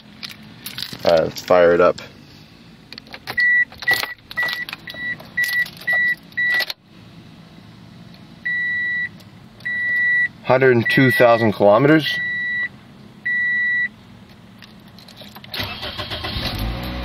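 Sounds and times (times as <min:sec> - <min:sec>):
ignition key clicks: 0:03.0 - 0:06.8
car warning chime beeping: 0:03.3 - 0:06.8, 0:08.4 - 0:14.0.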